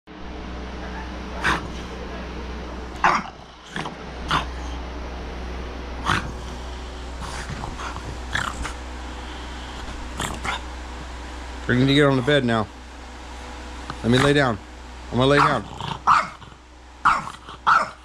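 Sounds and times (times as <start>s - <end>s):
dog barking sharply: 3.0s - 3.3s, 15.4s - 16.4s, 17.0s - 18.0s.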